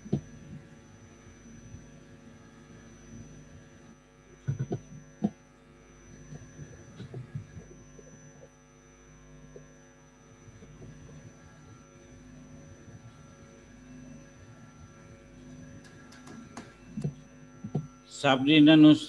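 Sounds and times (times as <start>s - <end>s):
electrical hum: 0.0s - 19.0s
thin high whine: 0.0s - 19.0s.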